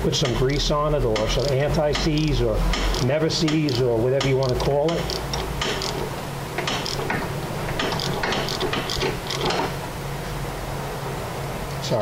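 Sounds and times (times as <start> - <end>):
socket ratchet clicking: 1.2 - 9.7.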